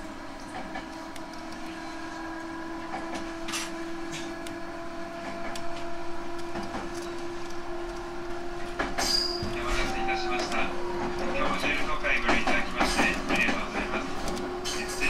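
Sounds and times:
train running hum: 0.0 - 15.0
rattles and clicks: 8.6 - 15.0.

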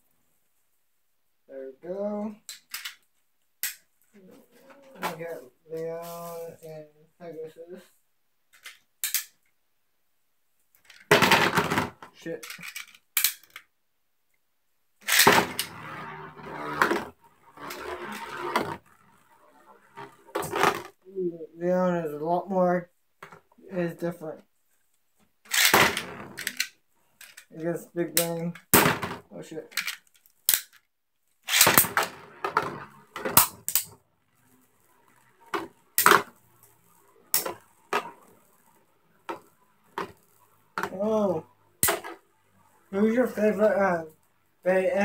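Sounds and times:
spinning top launcher rip: 15.0 - 20.9, 25.5 - 26.6, 31.5 - 33.9
spinning tops whirring and scraping: 15.0 - 21.0, 25.5 - 27.5, 31.5 - 43.6.

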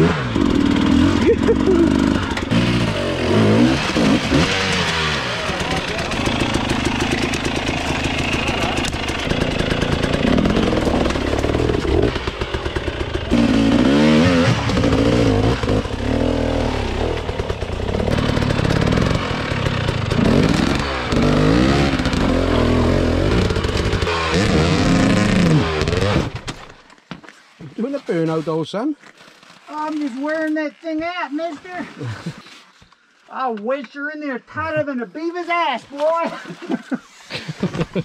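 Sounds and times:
dirt bike engine revving: 0.0 - 26.5.

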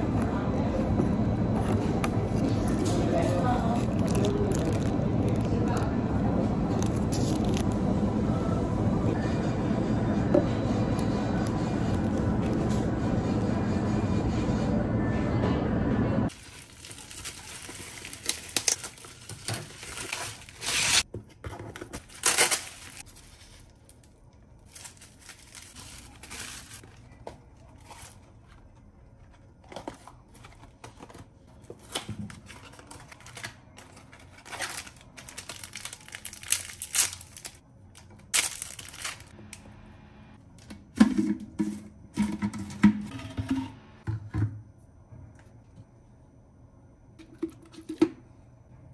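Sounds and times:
bubble wrap crinkling and tearing: 2.6 - 6.0, 6.7 - 7.7, 16.3 - 21.1, 22.0 - 28.5, 31.8 - 37.6, 38.3 - 39.4.

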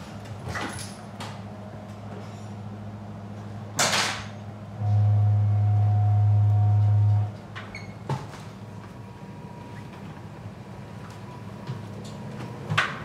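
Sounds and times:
low machinery hum: 1.2 - 13.0
loud low drone: 4.8 - 7.4.

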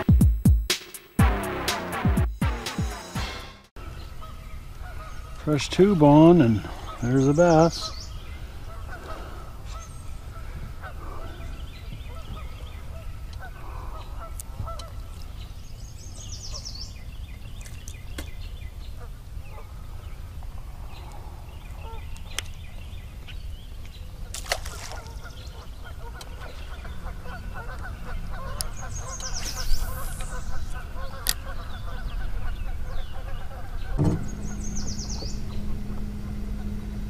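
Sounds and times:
faint bird calls: 3.8 - 37.0
low rumble: 32.3 - 37.0.

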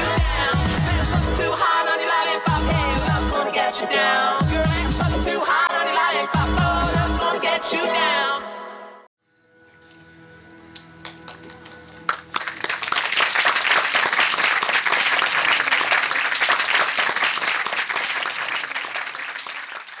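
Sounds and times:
film music: 0.0 - 12.7
audience applauding: 11.0 - 20.0.

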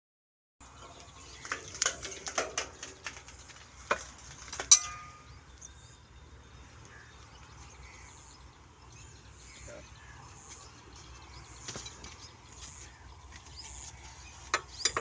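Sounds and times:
spanner clinking on metal: 4.6 - 5.2, 14.5 - 15.0
loud metallic clang: 4.7 - 5.3.

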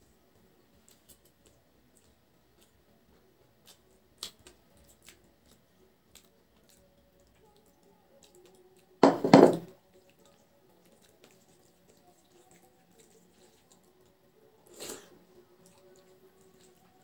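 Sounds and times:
bowl clattering on table: 9.0 - 9.7.

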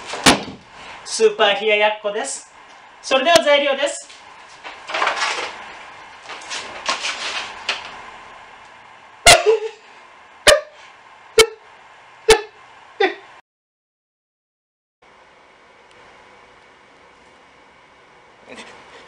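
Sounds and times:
rustling and handling noise: 4.0 - 8.7
dog barking: 10.4 - 10.8, 11.4 - 11.6.

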